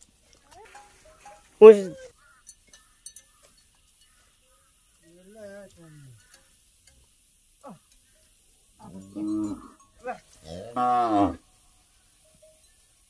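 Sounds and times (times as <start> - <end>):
cow mooing: 10.4 - 11.4.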